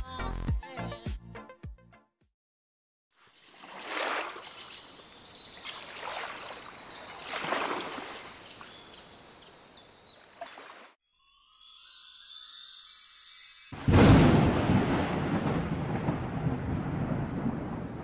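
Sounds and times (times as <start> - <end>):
small birds chirping: 3.2 - 10.8
water lapping: 3.4 - 9.1, 10.2 - 11.0.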